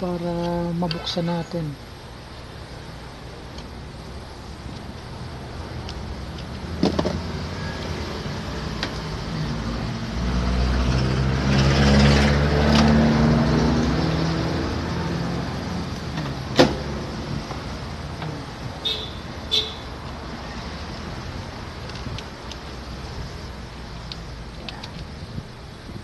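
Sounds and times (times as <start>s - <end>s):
steady background hum: 0.0s - 10.2s
passing vehicle engine rumble: 4.1s - 25.8s.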